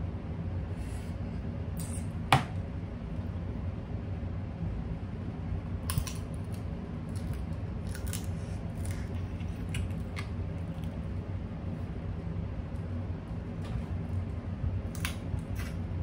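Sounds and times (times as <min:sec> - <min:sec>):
low steady hum: 0:00.0 - 0:16.0
crab shell cracking: 0:05.8 - 0:11.0.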